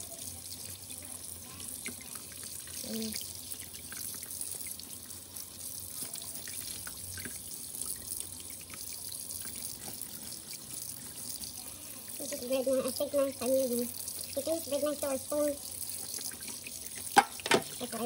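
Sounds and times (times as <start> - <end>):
tap running into metal sink: 16.4 - 17.9.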